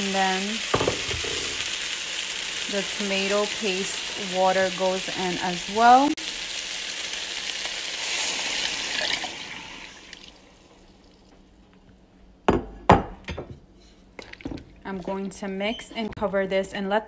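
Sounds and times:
vegetables sizzling in oil: 0:00.0 - 0:10.4
water poured into pan: 0:07.1 - 0:10.5.

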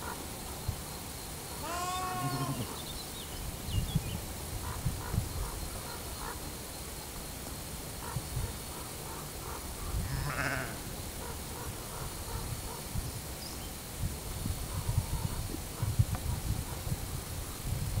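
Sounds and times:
sheep bleating: 0:01.6 - 0:02.7, 0:10.1 - 0:10.8.

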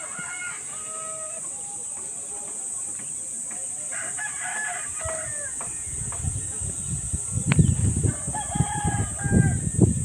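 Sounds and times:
roosters crowing: 0:00.0 - 0:01.9, 0:03.9 - 0:06.0, 0:08.0 - 0:10.0.

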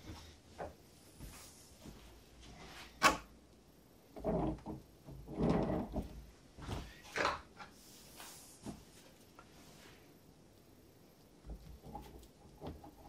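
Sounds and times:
handling knocks and rustles: 0:04.2 - 0:09.8.

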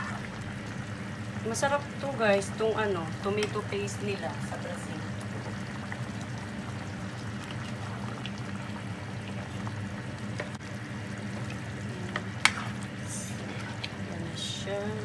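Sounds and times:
steady low hum: 0:00.0 - 0:15.0
thick stew stirred in pot: 0:04.4 - 0:14.6.

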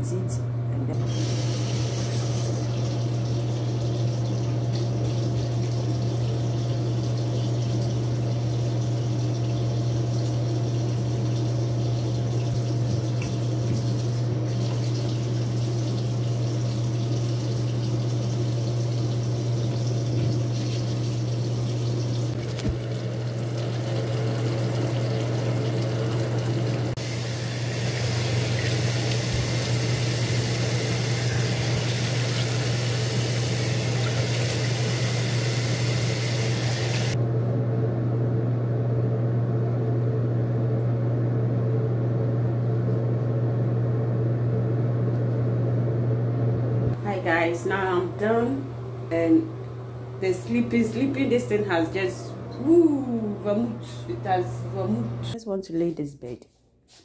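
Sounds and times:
tap water running into sink: 0:01.0 - 0:37.2.

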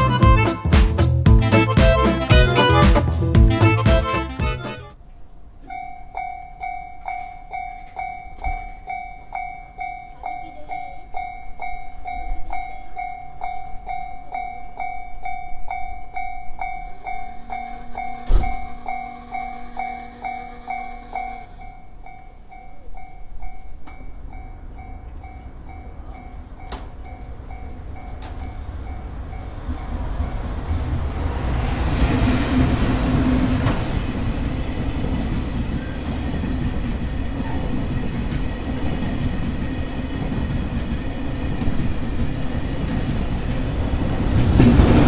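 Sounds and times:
level-crossing alarm bell: 0:05.6 - 0:30.6.

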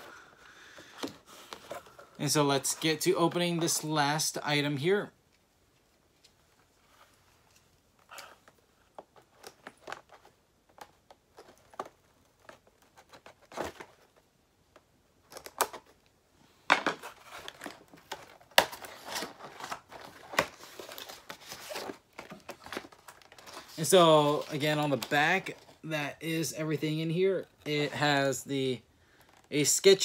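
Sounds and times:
packaging crinkling and rustling: 0:16.9 - 0:25.8.

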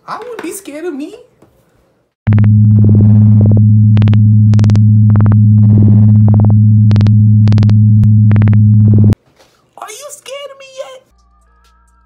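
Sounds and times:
crackling static bursts: 0:02.2 - 0:09.2
low buzzing hum: 0:02.2 - 0:09.2.

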